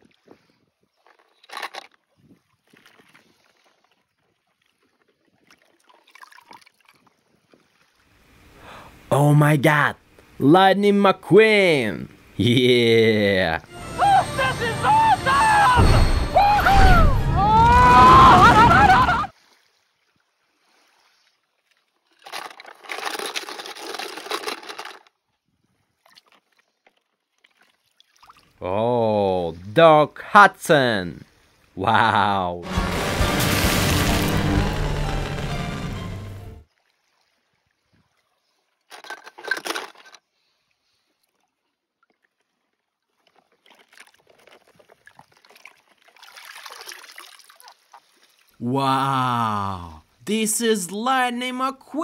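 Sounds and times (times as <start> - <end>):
water splashing and sloshing: 0.0 - 8.6, 15.8 - 28.6, 32.6 - 48.6
water splashing in a tub: 2.4 - 8.0, 25.9 - 28.6, 41.3 - 48.6.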